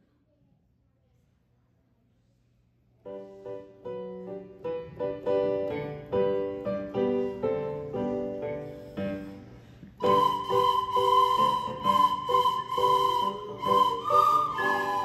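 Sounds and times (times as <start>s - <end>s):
piano chords and melody: 3.9s - 9.3s.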